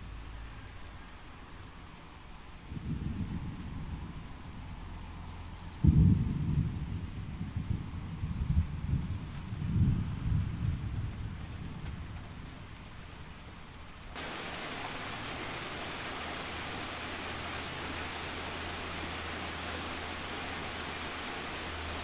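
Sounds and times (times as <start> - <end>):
rain hissing: 9.5 - 22.0
thunder rumbling: 14.2 - 22.0.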